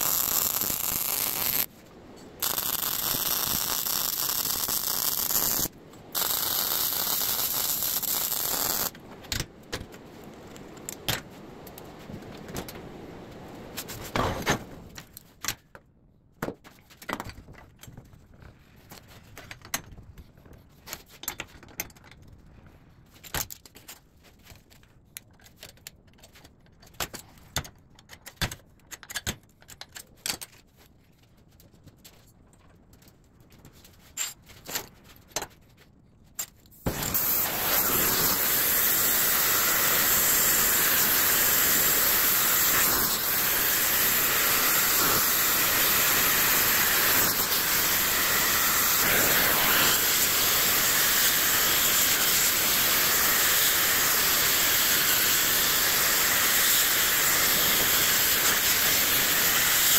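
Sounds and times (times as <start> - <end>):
welding arc hissing: 0.0 - 1.7, 2.4 - 9.0, 36.9 - 59.9.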